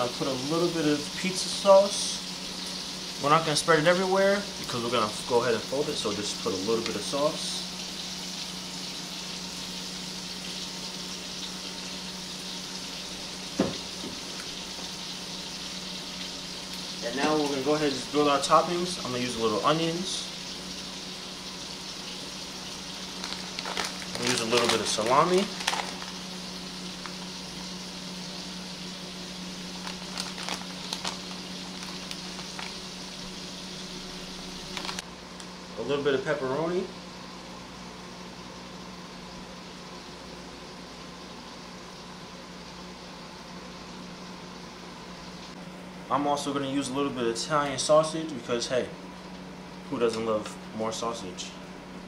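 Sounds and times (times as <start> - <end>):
kitchen hiss: 0.0 - 35.0
onions sizzling in a pan: 0.0 - 45.6.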